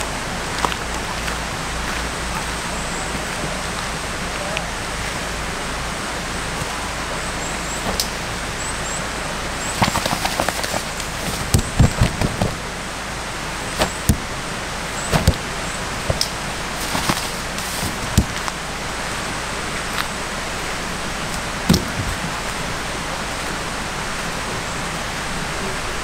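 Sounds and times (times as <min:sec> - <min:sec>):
stream rushing: 0:00.0 - 0:26.0
knocks and clicks: 0:09.8 - 0:12.6, 0:16.1 - 0:18.6.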